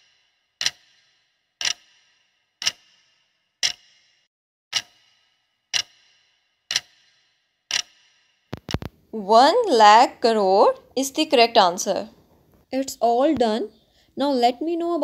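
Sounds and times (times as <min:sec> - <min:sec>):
clock ticking: 0:00.6 - 0:03.0, 0:03.6 - 0:04.0, 0:04.7 - 0:08.9.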